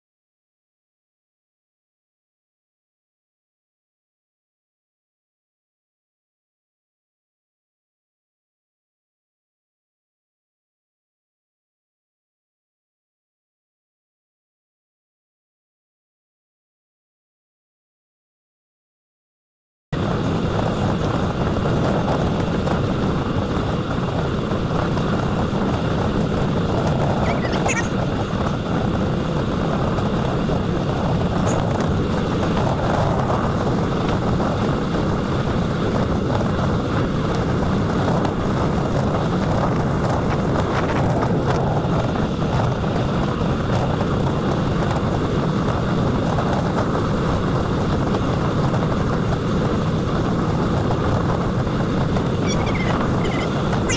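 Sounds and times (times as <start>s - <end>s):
wind buffeting microphone: 20.0s - 53.9s.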